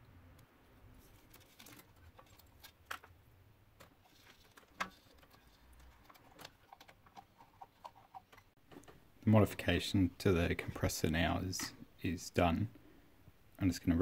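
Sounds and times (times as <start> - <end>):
plastic parts clicking and tapping: 3.8 - 9.0.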